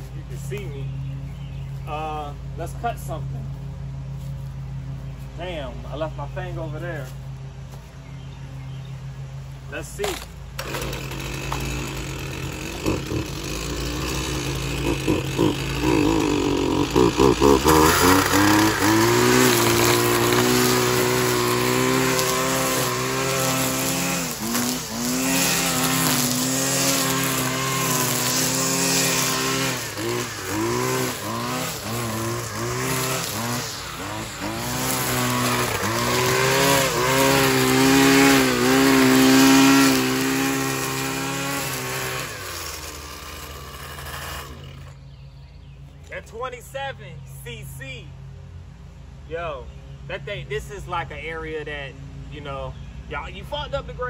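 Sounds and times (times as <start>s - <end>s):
string trimmer cutting grass: 9.8s - 45.3s.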